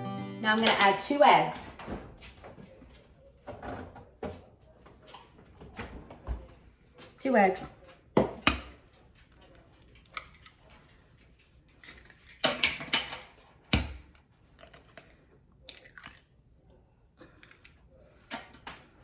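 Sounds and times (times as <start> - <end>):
eggs cracking on a ceramic bowl: 11.7 - 16.5.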